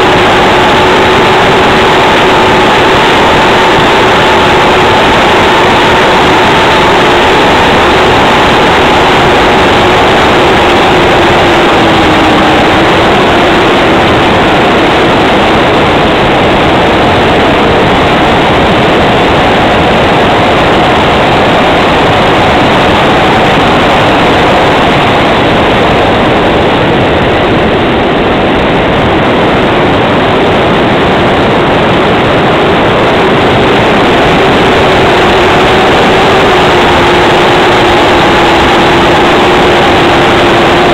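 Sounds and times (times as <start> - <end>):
faint engine drone: 0.0 - 40.9
wind rushing over microphone: 0.0 - 40.9.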